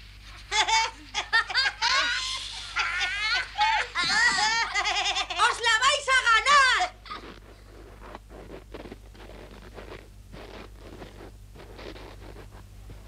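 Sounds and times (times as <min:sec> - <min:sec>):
footsteps crunching in snow: 0:07.1 - 0:13.0.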